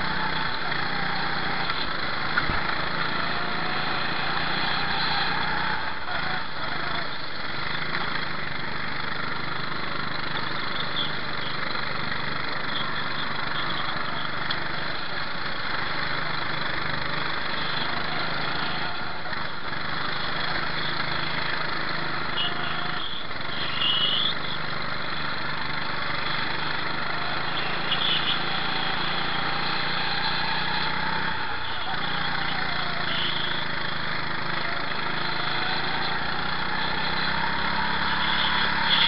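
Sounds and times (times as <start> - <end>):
go-kart engine running: 0.0 - 39.0.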